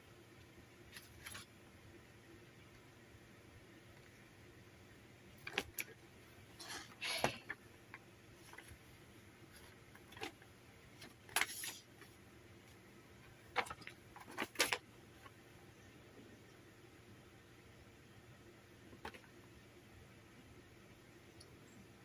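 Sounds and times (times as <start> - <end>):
paper leaflet crinkling: 0.9 - 1.5, 11.0 - 12.2.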